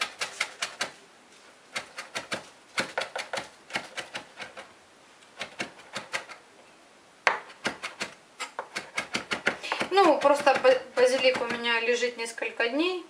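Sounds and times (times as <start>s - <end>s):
knife chopping on cutting board: 1.8s - 4.7s, 5.4s - 6.3s, 7.3s - 11.7s.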